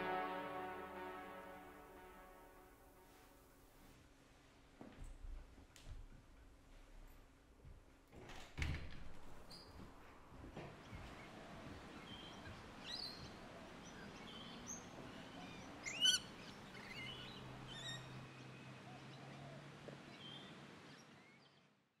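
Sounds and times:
birds chirping and whistling: 0:15.5 - 0:18.2.

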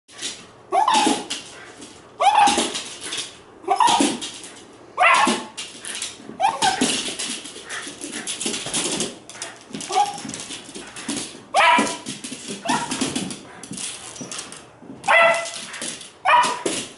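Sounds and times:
terrier barking: 0:11.5 - 0:12.0, 0:15.1 - 0:15.6, 0:16.2 - 0:16.6.

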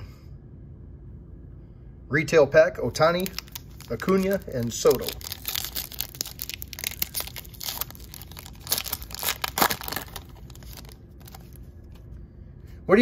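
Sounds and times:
foil wrapper crackling and tearing: 0:03.0 - 0:11.6.

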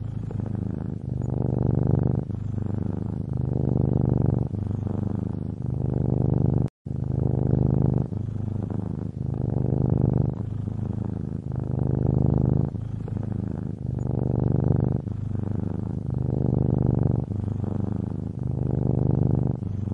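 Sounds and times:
cat purring: 0:00.0 - 0:19.9.

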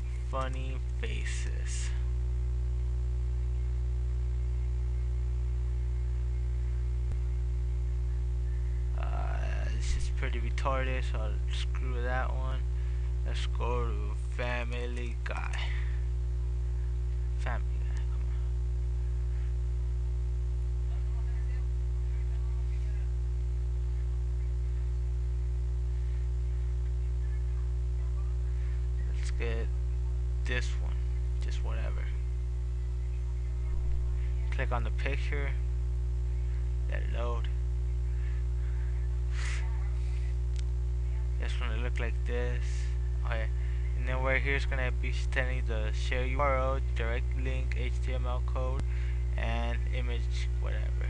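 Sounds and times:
low mains hum: 0:00.0 - 0:51.0.

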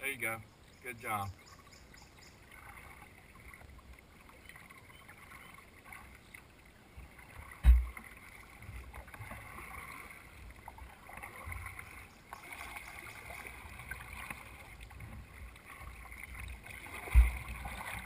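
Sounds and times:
water dripping from paddle: 0:01.3 - 0:18.0
paddle strokes in water: 0:01.5 - 0:18.0
sharp low thump: 0:07.6 - 0:08.0, 0:17.1 - 0:17.4.

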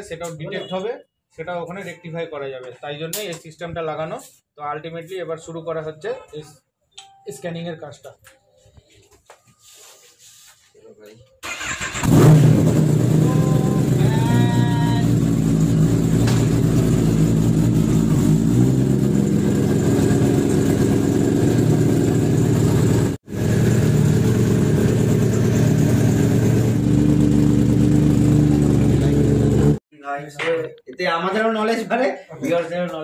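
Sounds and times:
motorcycle engine idling: 0:12.7 - 0:29.8.

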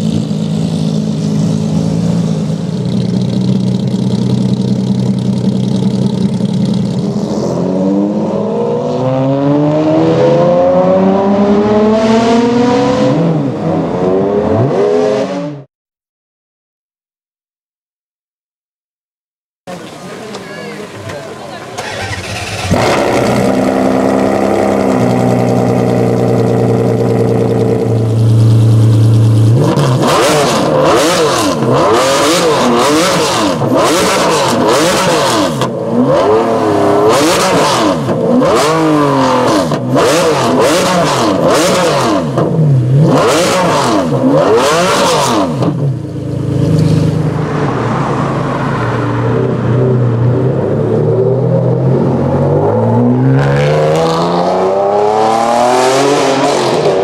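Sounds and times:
car engine idling and revving: 0:00.0 - 0:15.7, 0:19.7 - 0:57.0.

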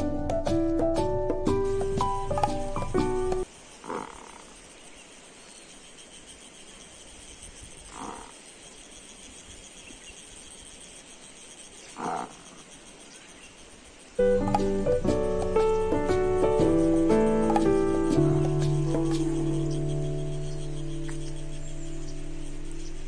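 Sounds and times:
background music: 0:00.0 - 0:03.5, 0:14.2 - 0:23.0
faint steady hiss: 0:00.0 - 0:23.0.

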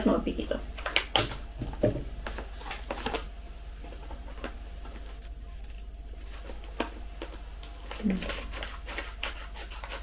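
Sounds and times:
plastic pouch crinkling: 0:04.0 - 0:09.4.

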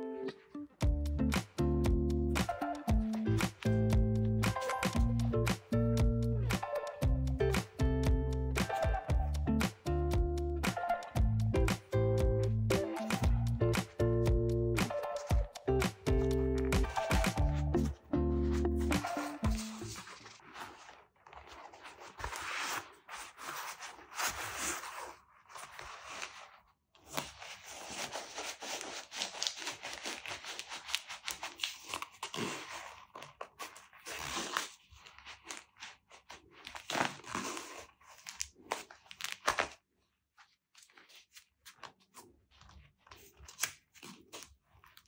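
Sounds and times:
glove rustling and crinkling: 0:12.5 - 0:45.0.

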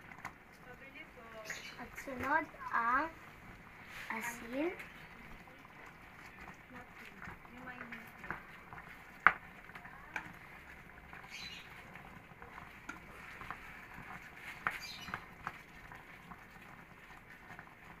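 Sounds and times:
spatula stirring thick sauce: 0:01.5 - 0:18.0
spatula tapping pot: 0:04.7 - 0:18.0.

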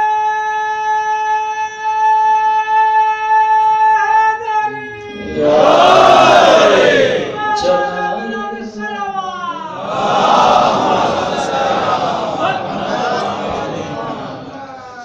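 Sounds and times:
man chanting through microphone: 0:00.0 - 0:15.0
audience shouting together: 0:05.1 - 0:07.8, 0:09.7 - 0:14.6.

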